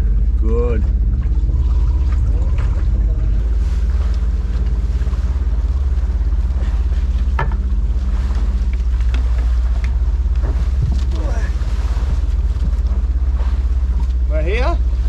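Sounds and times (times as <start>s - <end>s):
boat engine running: 0.0s - 15.0s
wind and water noise: 0.0s - 15.0s.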